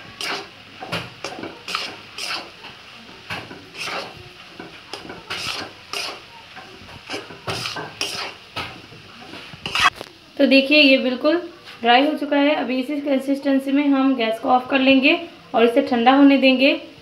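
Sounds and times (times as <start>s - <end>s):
wooden spatula scraping a pan: 0.0s - 10.0s.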